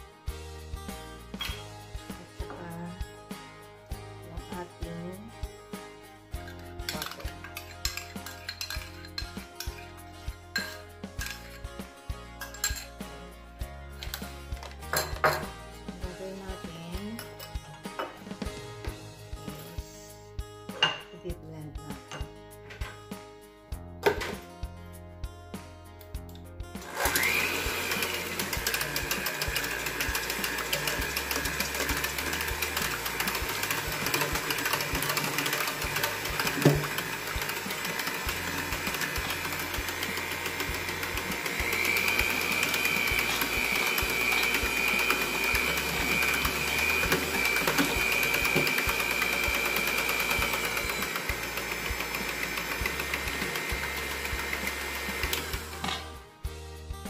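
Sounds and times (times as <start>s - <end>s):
electric hand mixer whisking: 6.5s - 9.8s, 26.8s - 56.0s.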